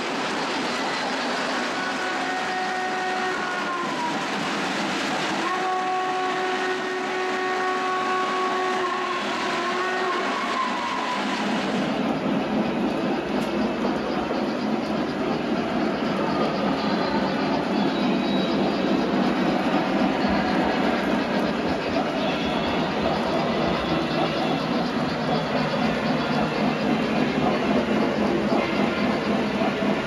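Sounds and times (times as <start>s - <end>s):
model trains rolling on track: 0.0s - 30.0s
model train steam whistle: 0.7s - 4.4s, 5.2s - 12.0s, 16.3s - 27.5s.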